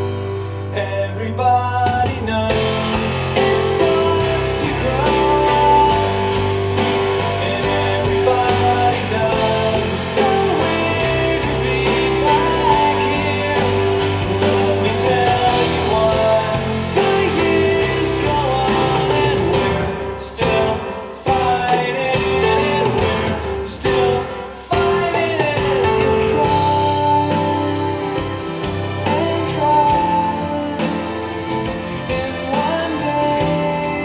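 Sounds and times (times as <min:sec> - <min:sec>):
guitar accompaniment: 0:00.0 - 0:34.0
man singing a pop ballad: 0:00.0 - 0:34.0.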